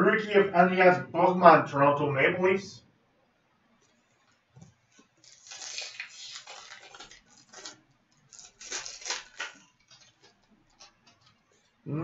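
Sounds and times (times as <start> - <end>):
cards rustling and clicking: 4.9 - 11.8
wrapper crinkling: 4.9 - 11.8.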